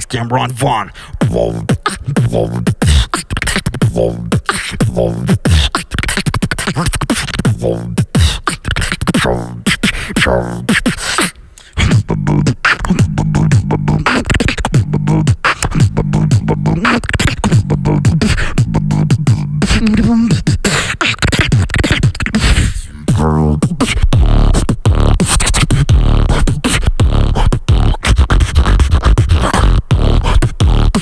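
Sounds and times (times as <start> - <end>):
beatboxing into microphone: 0.0 - 31.0
pulsing low bass tone: 11.9 - 14.0, 15.8 - 16.8, 17.6 - 19.6, 23.1 - 25.2, 25.9 - 26.3, 27.0 - 27.9, 29.7 - 31.0.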